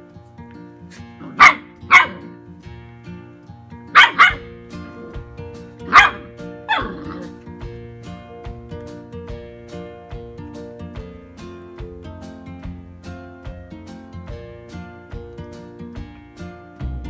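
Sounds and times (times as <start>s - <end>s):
acoustic guitar music: 0.0s - 17.0s
puppies barking: 1.0s - 2.4s, 3.9s - 4.5s, 5.8s - 7.4s.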